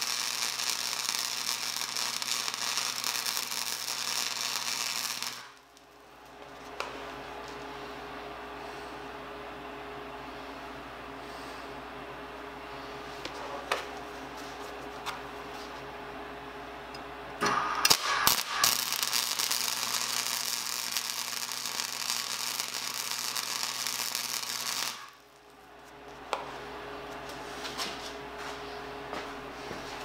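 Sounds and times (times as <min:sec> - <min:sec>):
welder sputtering: 0:00.0 - 0:05.6, 0:17.4 - 0:25.2
welder arc crackling: 0:00.0 - 0:07.6, 0:16.9 - 0:25.6.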